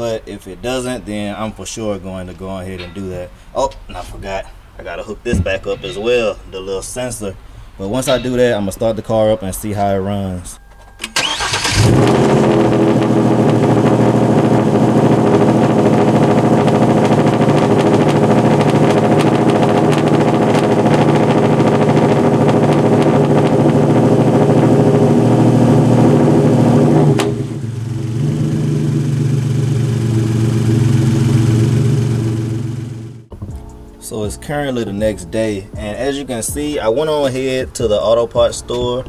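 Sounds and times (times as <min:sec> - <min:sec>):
car engine idling: 0:11.1 - 0:33.3.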